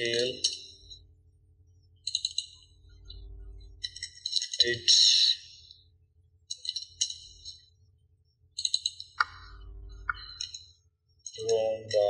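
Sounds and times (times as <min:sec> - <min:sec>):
keyboard typing: 0:02.0 - 0:02.6, 0:08.6 - 0:10.6
mouse clicks: 0:08.6 - 0:10.6.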